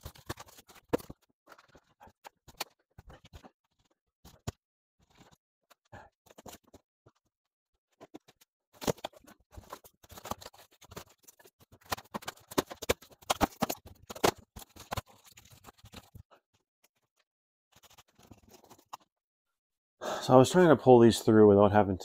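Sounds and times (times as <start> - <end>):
foam board cracking and scraping: 0.0 - 6.8, 7.9 - 19.1.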